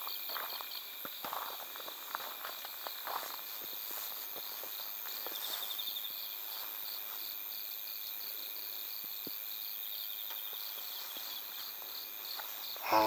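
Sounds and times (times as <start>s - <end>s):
fast insect trill: 0.0s - 13.0s
insect chirping in regular pulses: 0.0s - 13.0s.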